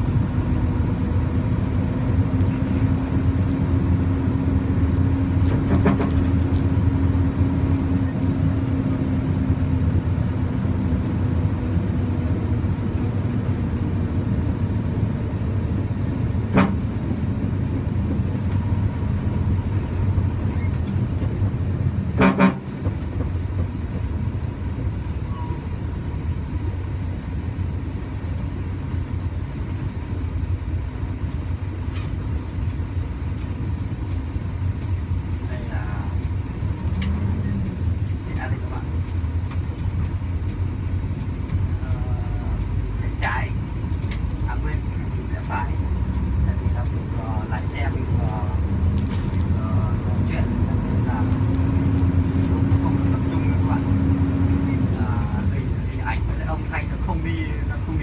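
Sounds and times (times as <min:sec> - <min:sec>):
truck engine and road drone: 0:00.0 - 0:58.0
truck horn toots: 0:16.4 - 0:17.0, 0:22.0 - 0:22.9.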